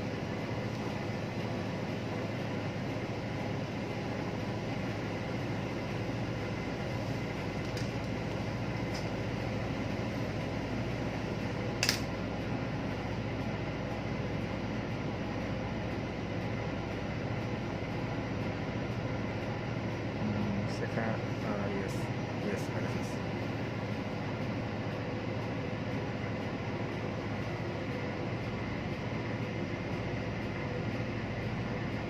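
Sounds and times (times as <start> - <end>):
machinery drone with low hum: 0.0 - 32.0
sharp click: 11.8 - 12.1.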